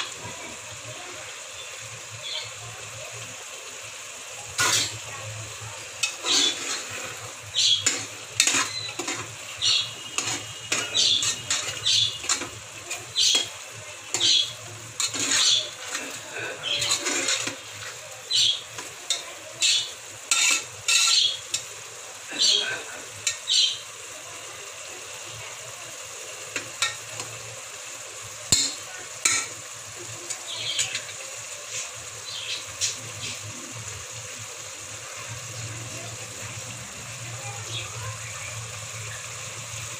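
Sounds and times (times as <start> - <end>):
mince sizzling in oil: 0.0 - 39.9
metal spatula scraping a pot: 4.6 - 5.0, 6.0 - 21.7.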